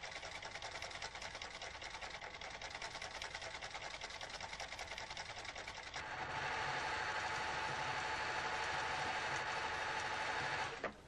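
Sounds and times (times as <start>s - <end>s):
sewing machine needle clattering: 0.0s - 6.0s.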